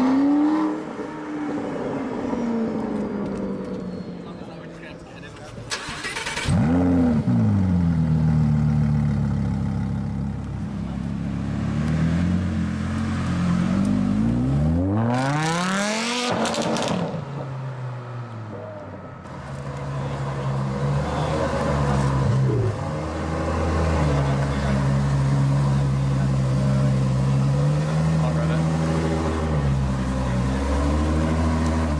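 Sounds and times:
sports car engine revving: 6.1s - 17.4s.

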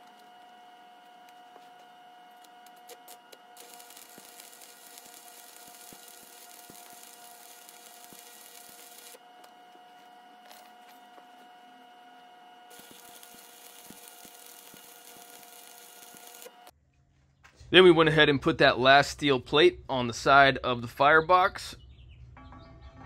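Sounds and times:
welding arc crackling: 2.3s - 9.2s, 12.7s - 16.7s.

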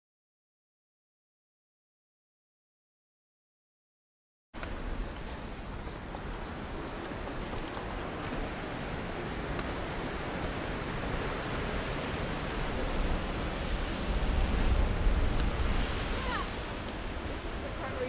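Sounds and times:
distant surf: 4.6s - 18.0s
wind buffeting microphone: 4.6s - 18.0s.

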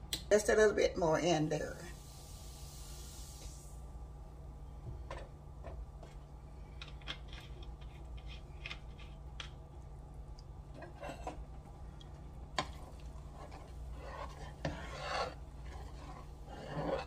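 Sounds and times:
gravy popping and crackling: 6.7s - 17.0s.

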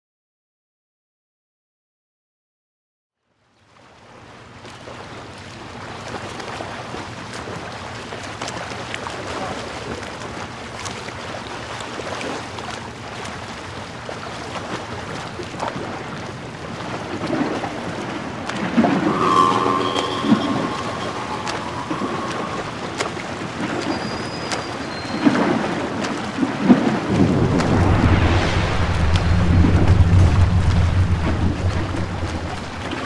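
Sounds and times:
water movement: 4.7s - 33.0s
wind noise on microphone: 15.0s - 33.0s
low steady hum: 27.1s - 33.0s.

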